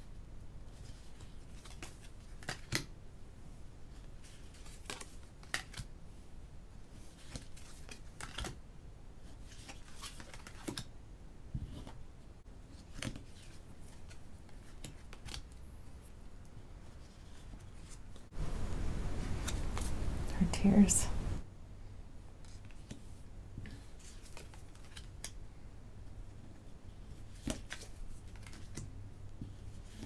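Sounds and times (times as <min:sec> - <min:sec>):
cards sliding and tapping: 0:00.7 - 0:02.9, 0:04.0 - 0:05.9, 0:09.4 - 0:10.9, 0:12.8 - 0:15.6, 0:19.3 - 0:20.0, 0:22.4 - 0:25.4, 0:27.2 - 0:30.0.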